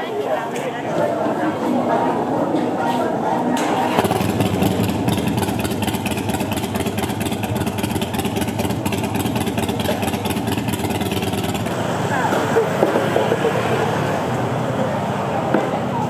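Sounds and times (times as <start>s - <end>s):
engine running rough: 3.5s - 16.0s.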